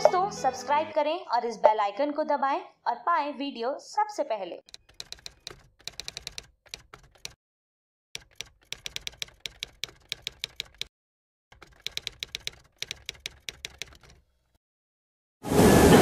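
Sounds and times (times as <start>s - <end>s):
rapid key clicks: 4.7s - 7.4s, 8.2s - 10.9s, 11.5s - 14.6s.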